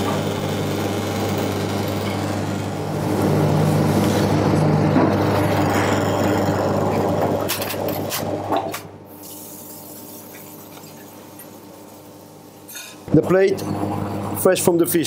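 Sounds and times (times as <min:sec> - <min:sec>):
machinery hum: 0:00.0 - 0:15.0
rushing kitchen noise: 0:12.7 - 0:15.0.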